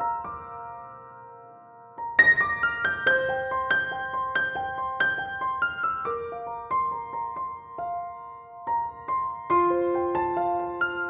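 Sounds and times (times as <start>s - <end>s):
piano music: 0.0s - 11.0s.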